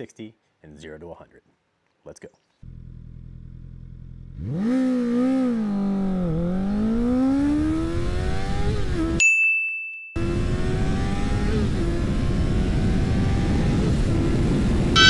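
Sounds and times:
motorcycle engine revving: 0:02.6 - 0:09.2, 0:10.2 - 0:14.9.

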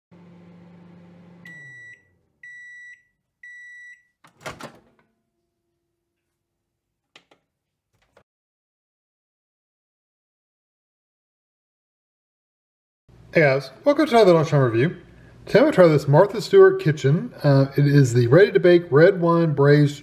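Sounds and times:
microwave oven humming: 0:00.1 - 0:05.7
microwave door clunk: 0:04.3 - 0:05.0.

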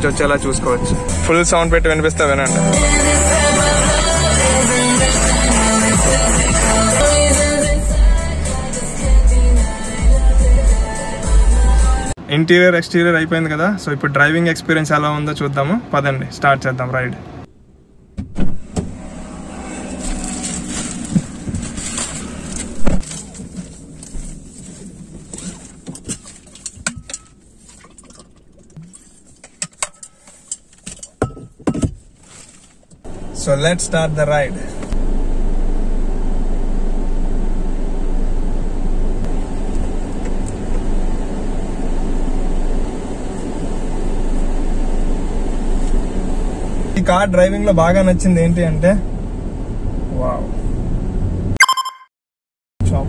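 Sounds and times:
song with singing and heavy bass: 0:02.4 - 0:12.2
car door shutting: 0:18.1 - 0:24.2
rustling and knocks: 0:20.0 - 0:28.0, 0:28.9 - 0:33.0.

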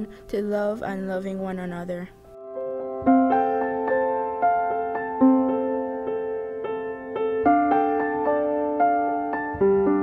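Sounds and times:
slow piano melody: 0:02.1 - 0:10.0.

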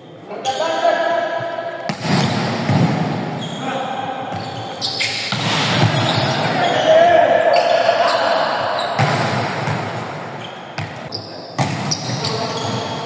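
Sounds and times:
players' voices: 0:00.0 - 0:13.0
volleyball smacks: 0:01.9 - 0:03.1, 0:09.0 - 0:09.9.

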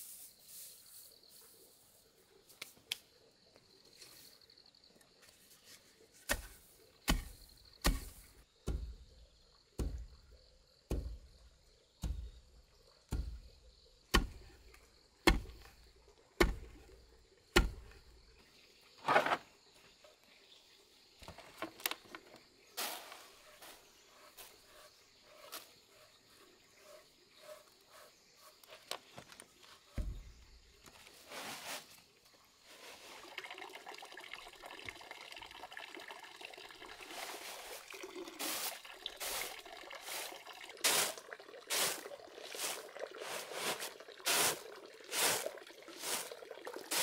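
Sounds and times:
dull thuds of pounding rice: 0:07.1 - 0:09.1, 0:10.9 - 0:11.4, 0:15.3 - 0:15.6.

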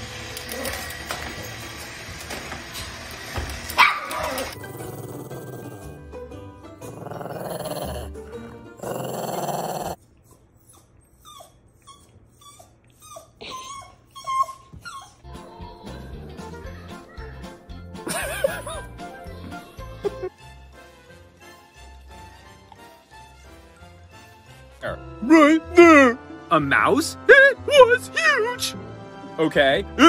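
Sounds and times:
high rising dog yelps: 0:03.8 - 0:04.6
small dogs growling and yipping: 0:03.8 - 0:06.0, 0:06.8 - 0:15.2.

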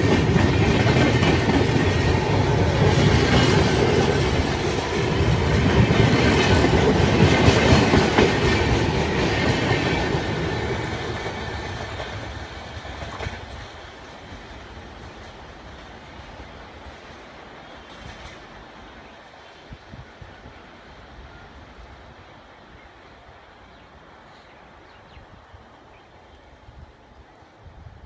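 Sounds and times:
train wheels clacking over track: 0:00.0 - 0:18.9.

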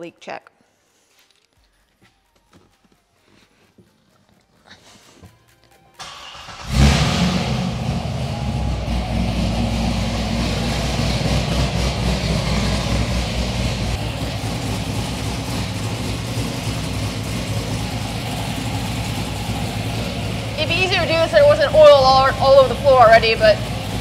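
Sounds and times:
car engine starting and idling: 0:05.9 - 0:24.0.

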